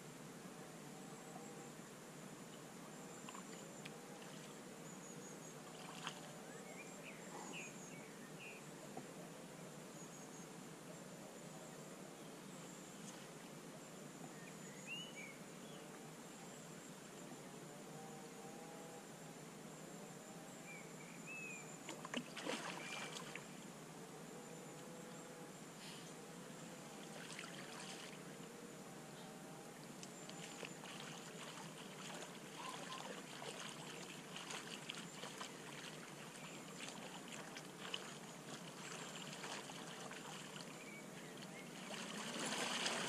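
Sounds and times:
steady outdoor hiss: 0.0 - 43.0
water splashing in shallows: 5.6 - 6.3, 21.9 - 23.5, 27.1 - 28.2, 30.4 - 40.8, 41.4 - 43.0.

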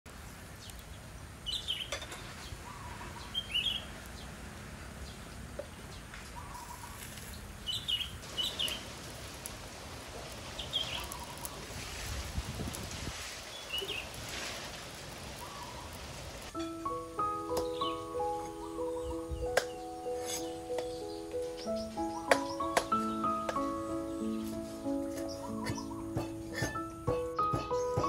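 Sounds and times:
background hiss: 0.1 - 28.0
high chirping animal calls: 17.4 - 28.0.

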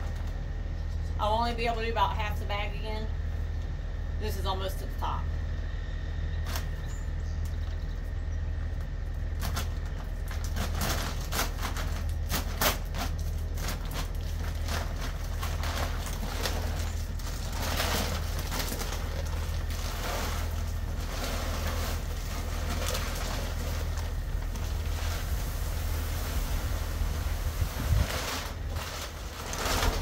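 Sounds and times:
steady low hum: 0.0 - 30.0
bag crinkling and rustling: 9.2 - 30.0
pellets pouring rattle: 10.4 - 30.0.

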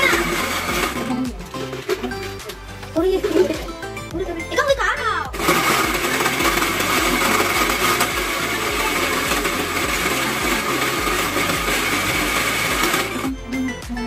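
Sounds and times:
blender whining: 0.0 - 3.9, 5.3 - 13.9.

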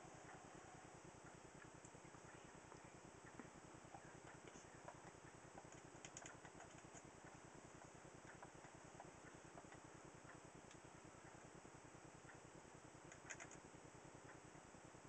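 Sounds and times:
faint low hum: 0.0 - 15.0
faint ticks: 12.2 - 14.5.

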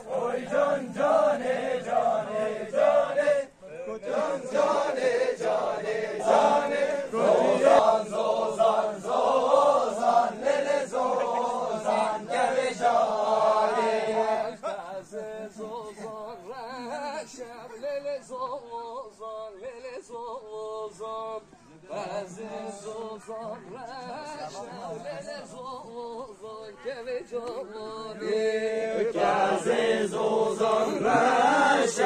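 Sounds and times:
man singing dance song: 11.0 - 32.0.

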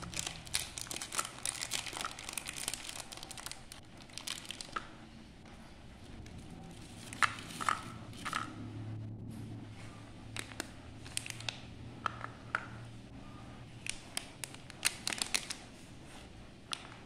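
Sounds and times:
plastic wrapper crinkling: 0.0 - 5.0, 6.3 - 8.5, 10.3 - 11.7, 13.7 - 15.8.

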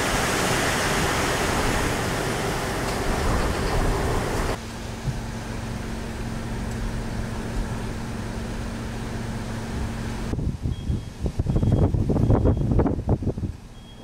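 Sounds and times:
low mechanical hum: 0.0 - 14.0
strong wind buffeting microphone: 9.7 - 13.7.

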